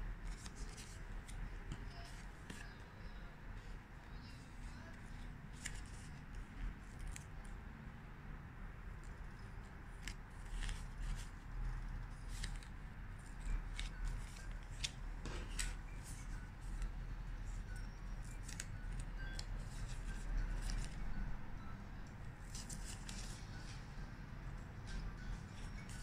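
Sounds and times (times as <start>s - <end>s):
crackles and ticks of sheets: 0.2s - 7.7s, 8.9s - 21.2s, 22.0s - 26.0s
stickers peeling off sheets: 9.0s - 21.0s.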